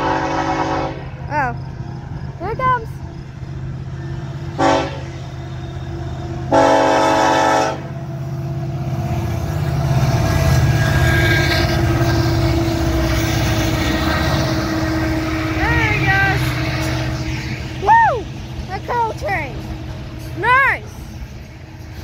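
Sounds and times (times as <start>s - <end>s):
train horn blast: 0.0s - 1.2s, 4.6s - 8.0s, 10.2s - 16.6s
diesel locomotive engines rumbling: 0.0s - 22.0s.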